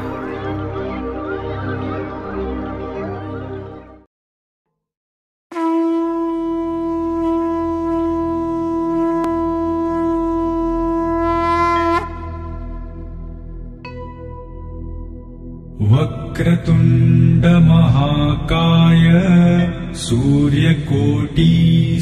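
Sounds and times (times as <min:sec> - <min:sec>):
low drone: 0:00.0 - 0:04.1, 0:11.8 - 0:22.0
music: 0:00.0 - 0:04.1, 0:06.2 - 0:22.0
conch shell blown: 0:05.5 - 0:14.3.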